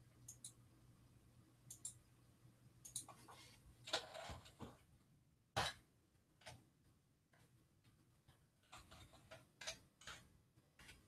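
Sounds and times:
mouse and keyboard clicks: 0:00.2 - 0:00.6, 0:01.7 - 0:02.0, 0:02.8 - 0:04.3.

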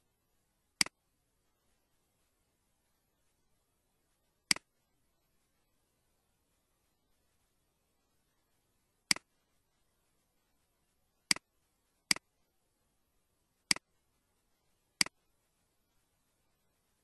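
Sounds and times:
computer mouse clicking: 0:04.5 - 0:04.7, 0:09.1 - 0:09.3, 0:13.7 - 0:13.9.

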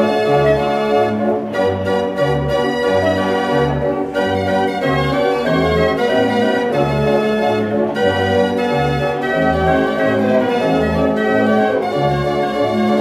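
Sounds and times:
street organ playing: 0:00.0 - 0:13.0.

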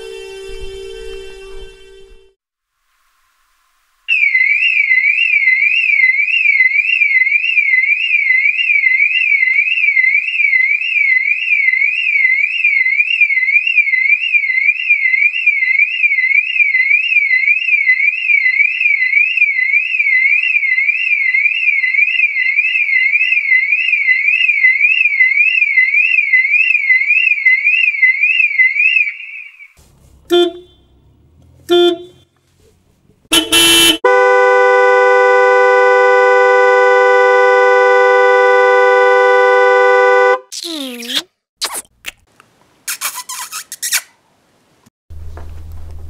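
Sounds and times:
warbling electronic siren: 0:04.1 - 0:29.8.

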